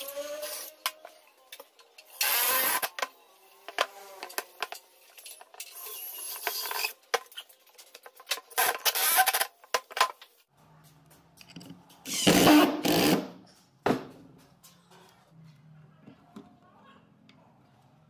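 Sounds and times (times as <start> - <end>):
cordless drill driving screws: 2.1 - 2.9.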